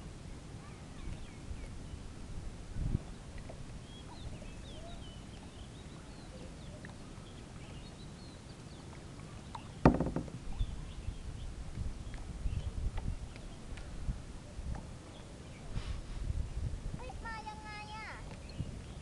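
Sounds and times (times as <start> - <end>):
low rumble of wind: 0.0 - 19.0
loud knock: 9.9 - 10.4.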